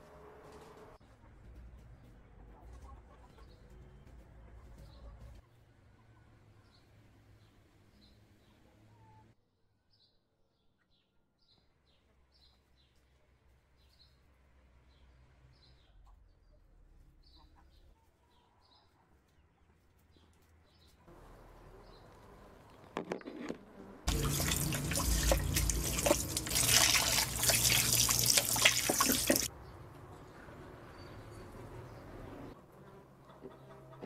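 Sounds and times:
tap water running onto meat: 24.1s - 29.5s.

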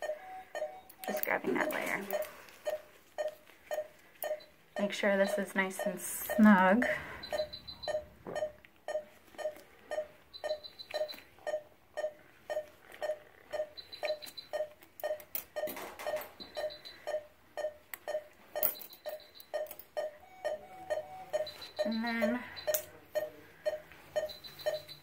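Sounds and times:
monitor pulse beeps: 0.0s - 25.0s
high rapid beeps: 5.2s - 18.3s, 19.0s - 25.0s.

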